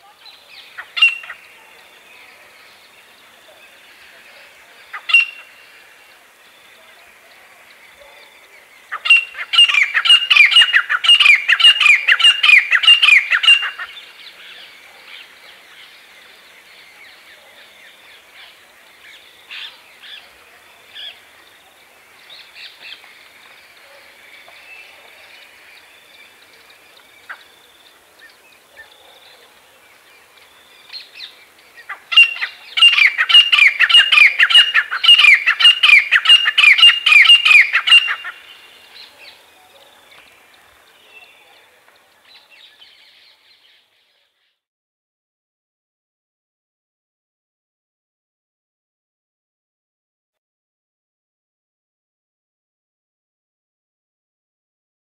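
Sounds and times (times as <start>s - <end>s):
francolins calling shrilly: 0.2s - 1.6s, 4.9s - 5.8s, 8.9s - 15.3s, 30.8s - 39.4s.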